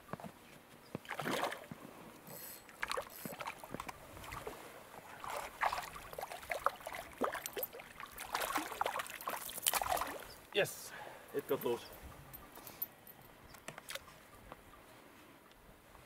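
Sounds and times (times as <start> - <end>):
fish splashing in water: 1.1 - 1.7, 2.7 - 10.3.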